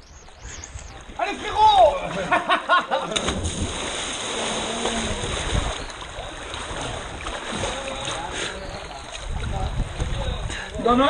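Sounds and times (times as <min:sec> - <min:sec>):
stream water rushing and splashing: 0:03.3 - 0:11.0.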